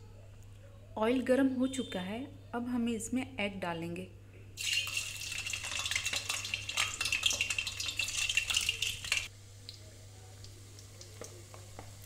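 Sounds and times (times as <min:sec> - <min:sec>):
eggs sizzling in hot oil: 0:04.6 - 0:12.0.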